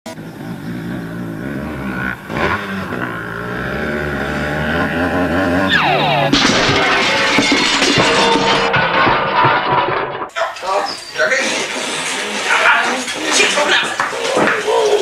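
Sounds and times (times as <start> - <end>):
motorcycle engine revving: 0.1 - 8.7.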